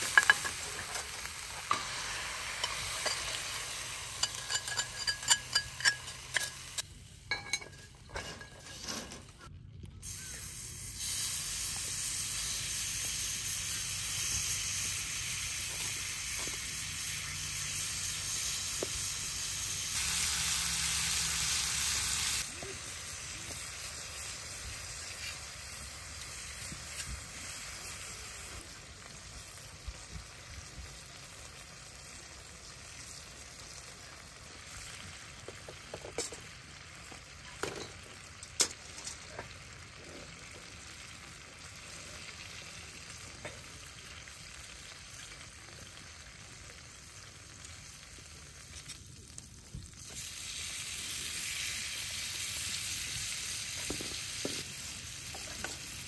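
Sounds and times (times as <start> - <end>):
beef sizzling in skillet: 0.0 - 8.9, 10.0 - 56.0
metal tongs clicking on pan: 4.2 - 6.8.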